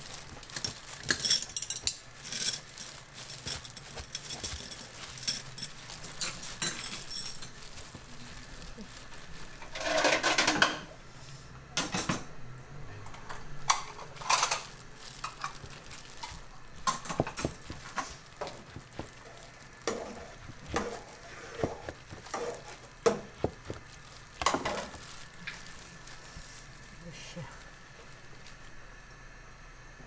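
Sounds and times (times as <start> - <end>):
plastic gloves crinkling: 0.0 - 10.6, 13.5 - 28.9
utensils clinking on counter: 0.4 - 7.9, 9.6 - 10.9, 11.8 - 12.3, 13.1 - 23.8.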